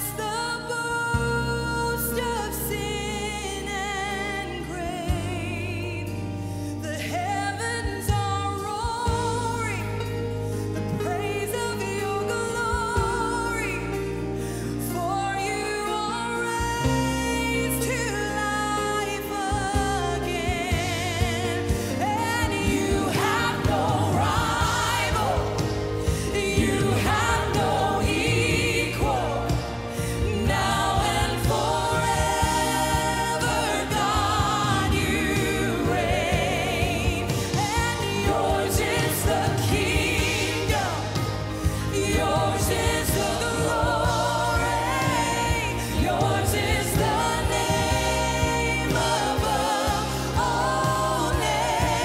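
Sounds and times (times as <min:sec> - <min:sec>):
band with bass line: 0:00.0 - 0:52.0
woman singing lead: 0:00.0 - 0:52.0
backing singers: 0:16.2 - 0:52.0.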